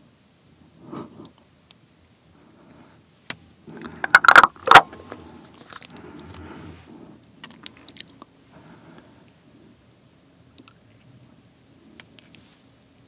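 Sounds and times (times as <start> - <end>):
eggshell handling: 3.7 - 6.2
eggshell cracking: 3.9 - 4.9.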